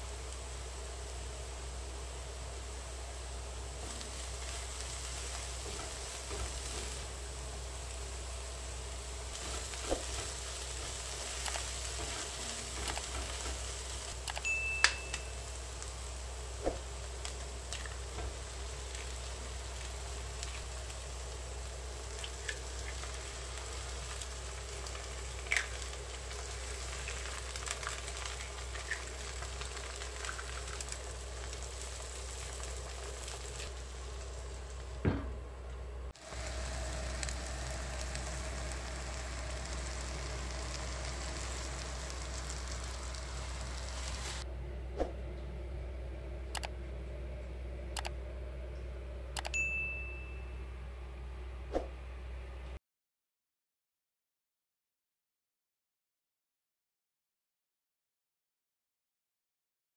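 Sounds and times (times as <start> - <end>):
vegetables sizzling in oil: 0.0 - 35.2, 36.0 - 44.4.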